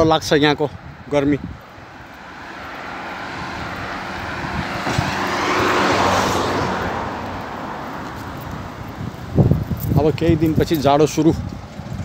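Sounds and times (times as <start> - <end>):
car driving past: 2.2 - 9.0.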